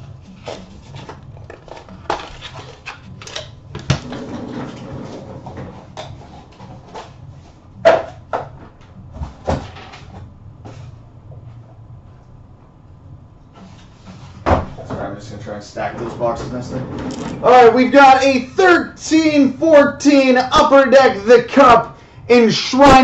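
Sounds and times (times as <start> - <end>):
card rustling: 0.3 - 3.5.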